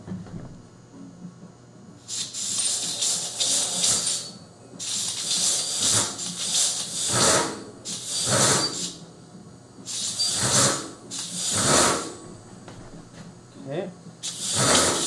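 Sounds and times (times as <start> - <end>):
short bursts of hissing: 2.1 - 9.0, 9.9 - 12.2, 14.2 - 15.0.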